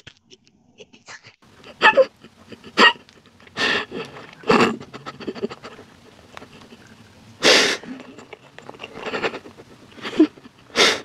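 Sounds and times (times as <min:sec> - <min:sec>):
person puffing breath: 0:02.5 - 0:06.8, 0:07.4 - 0:08.2, 0:08.8 - 0:11.0.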